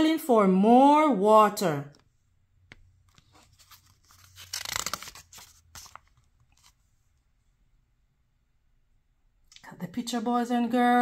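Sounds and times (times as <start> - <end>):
paper page turning: 3.1 - 6.9.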